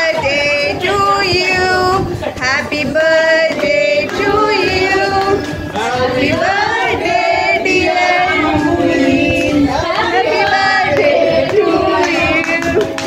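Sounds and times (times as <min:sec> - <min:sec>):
people singing together: 0:00.0 - 0:13.0
hands clapping: 0:02.4 - 0:06.7, 0:09.8 - 0:13.0.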